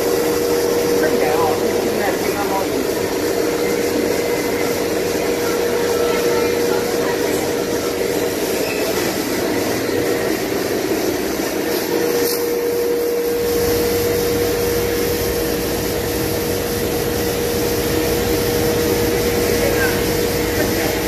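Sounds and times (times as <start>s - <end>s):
dust extraction hum: 0.0s - 21.0s.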